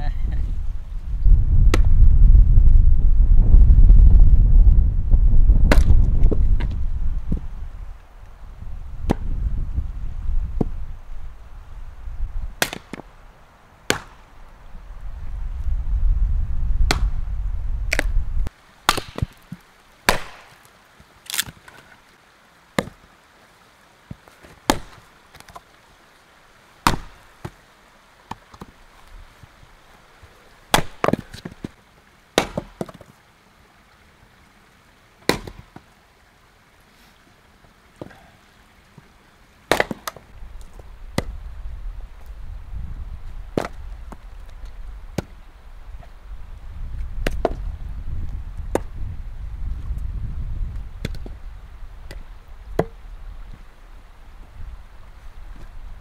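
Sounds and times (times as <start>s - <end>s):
wind rumble on microphone: 0.0s - 12.6s, 14.5s - 18.5s, 40.3s - 56.0s
axe splitting firewood: 5.6s - 6.7s, 12.6s - 13.0s, 18.9s - 20.6s, 21.3s - 21.8s, 26.8s - 27.6s, 30.7s - 31.7s, 32.4s - 33.1s, 35.3s - 35.8s, 39.7s - 40.2s, 43.6s - 44.2s.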